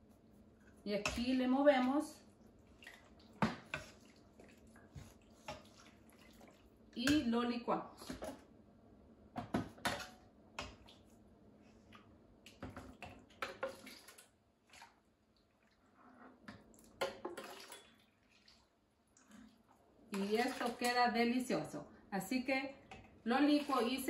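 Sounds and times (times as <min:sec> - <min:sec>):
wet splashes and squishes: 0:02.5 - 0:06.8, 0:11.9 - 0:15.8, 0:16.6 - 0:21.0.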